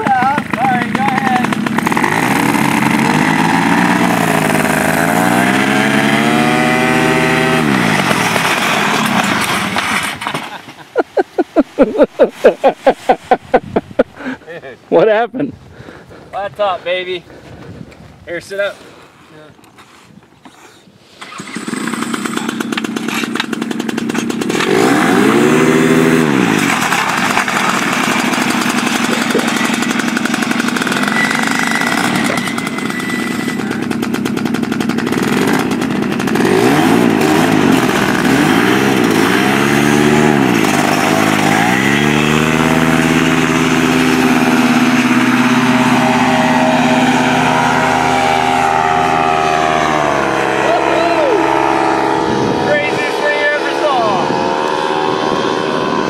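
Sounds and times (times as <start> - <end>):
paramotor engine revving: 0.0 - 10.0, 21.2 - 56.0.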